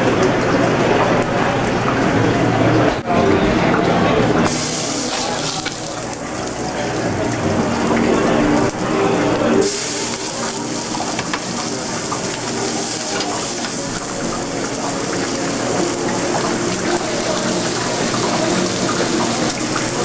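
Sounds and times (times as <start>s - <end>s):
food sizzling in pans: 4.5s - 20.0s.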